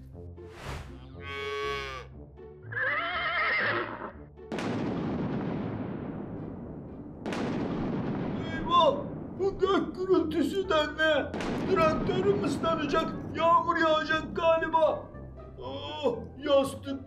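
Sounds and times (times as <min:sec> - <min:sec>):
farm animal calls: 0:01.2 - 0:04.2
thunderclap rumbling: 0:04.5 - 0:10.0, 0:11.3 - 0:13.4.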